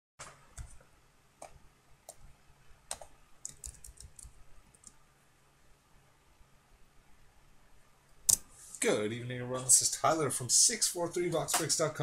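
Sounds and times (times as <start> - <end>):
computer keyboard typing: 2.9 - 5.0.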